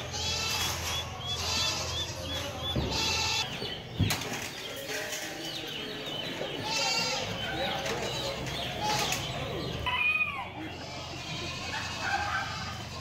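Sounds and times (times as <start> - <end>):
chickens flapping in wire cages: 3.8 - 6.6.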